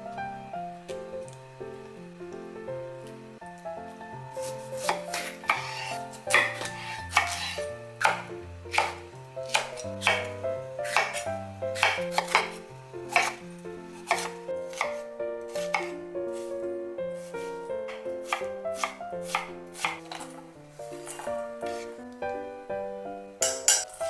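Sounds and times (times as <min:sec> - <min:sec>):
knife striking wooden cutting board: 0:04.5 - 0:13.4, 0:14.1 - 0:16.5, 0:17.9 - 0:21.9, 0:23.4 - 0:24.0.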